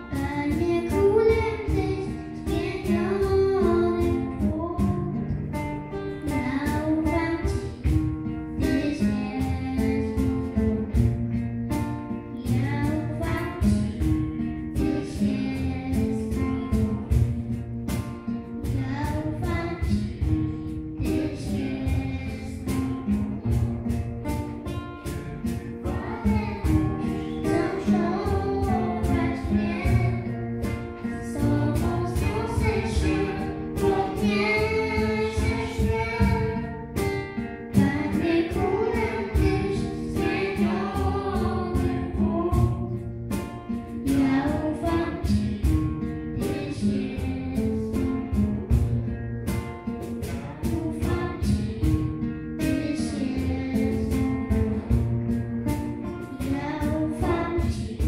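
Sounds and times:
girl singing into a microphone: 0.0s - 11.2s, 12.0s - 17.5s, 18.2s - 23.8s, 24.6s - 49.0s, 49.8s - 55.4s, 56.0s - 58.0s
acoustic guitar: 0.0s - 58.0s.

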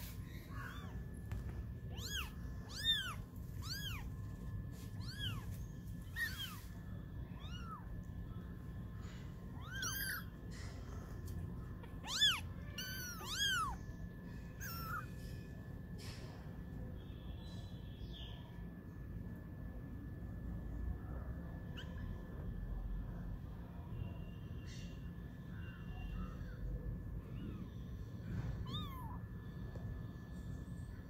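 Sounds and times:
kittens mewing: 0.0s - 8.0s, 9.1s - 15.2s, 26.2s - 29.2s.

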